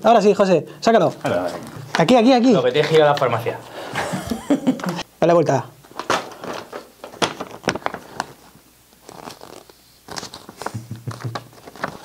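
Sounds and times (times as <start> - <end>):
glossy card crinkling and rustling: 5.9 - 12.0.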